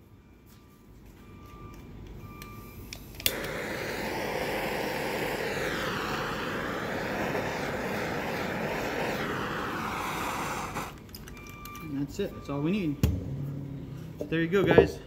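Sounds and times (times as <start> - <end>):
torch igniter click: 2.4 - 11.9
torch flame hissing: 3.2 - 11.1.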